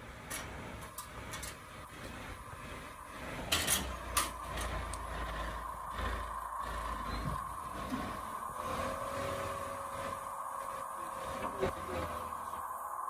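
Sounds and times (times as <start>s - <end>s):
lorry engine running: 0.0s - 13.0s.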